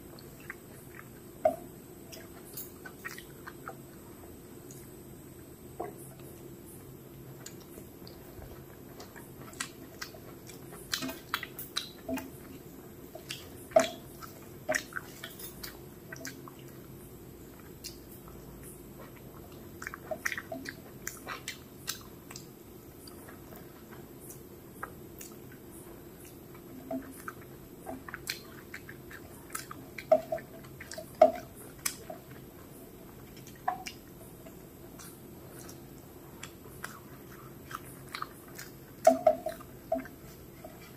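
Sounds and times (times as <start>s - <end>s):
person chewing wetly: 0.0s - 40.9s.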